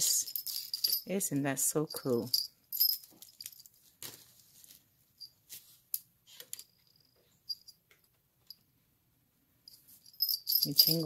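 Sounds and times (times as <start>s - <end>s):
small metal bell tinkling: 0.0s - 3.8s, 6.6s - 7.8s, 9.7s - 11.0s.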